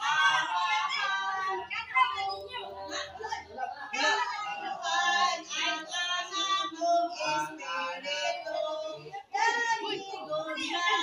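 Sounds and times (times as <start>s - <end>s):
child and women singing: 0.0s - 11.0s.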